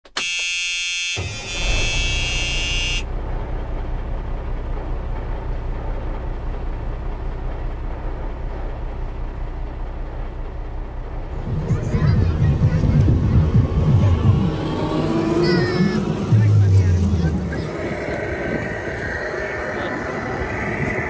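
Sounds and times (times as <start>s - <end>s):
truck air horn blast: 0.2s - 3.1s
low engine rumble: 1.4s - 21.0s.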